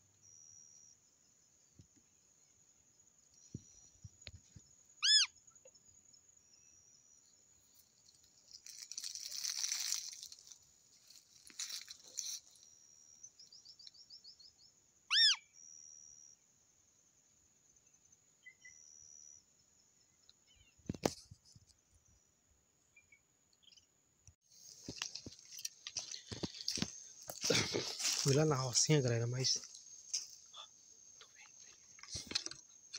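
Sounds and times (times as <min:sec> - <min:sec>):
soft high bird chirps: 0:00.0 - 0:16.5, 0:17.8 - 0:32.9
high insect whine: 0:00.0 - 0:22.2, 0:24.5 - 0:32.9
loud arched bird calls: 0:05.0 - 0:05.4, 0:15.1 - 0:15.6
bird trill: 0:05.0 - 0:05.7, 0:11.6 - 0:16.3, 0:18.4 - 0:19.5
rustling: 0:08.1 - 0:12.6, 0:24.5 - 0:28.8.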